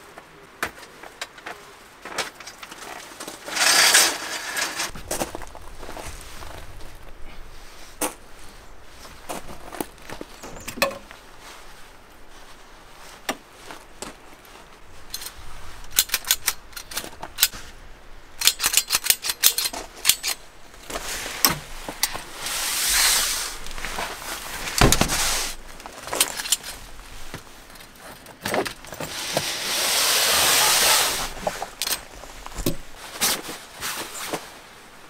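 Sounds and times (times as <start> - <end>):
brush scraping metal: 3.4 - 4.9, 28.9 - 33.0.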